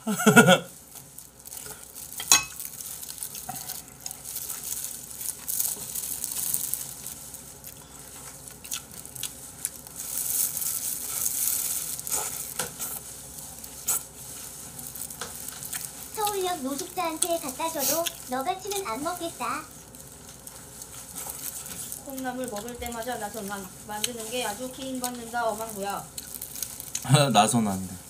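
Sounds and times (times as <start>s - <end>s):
wet chewing and sucking: 0.8s - 27.1s.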